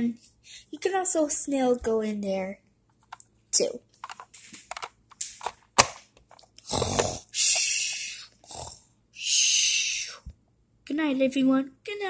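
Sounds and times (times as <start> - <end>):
child imitating snoring: 6.6 - 10.3.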